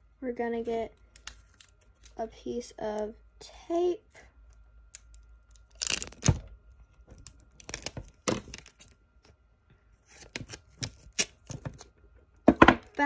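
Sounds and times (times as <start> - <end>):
crinkling: 4.5 - 9.4
sticky tape pulled and torn: 4.9 - 6.5, 7.1 - 9.0, 10.1 - 11.8.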